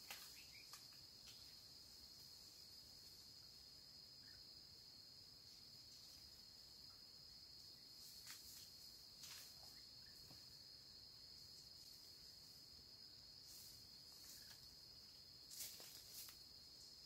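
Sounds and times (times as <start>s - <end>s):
soft rustles in leaf litter: 0.0s - 1.6s, 8.0s - 9.9s, 13.4s - 16.8s
insects droning: 0.0s - 17.0s.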